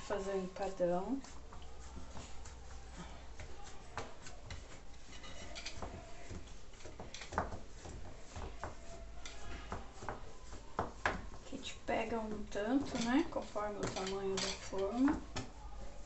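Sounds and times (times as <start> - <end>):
hands rubbing pastry dough: 0.0 - 16.0
fingers tapping baking pan: 1.2 - 16.0.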